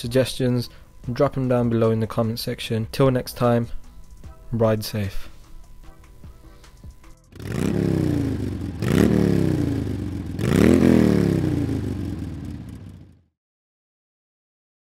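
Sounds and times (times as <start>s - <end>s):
motorcycle engine revving: 7.3s - 13.3s.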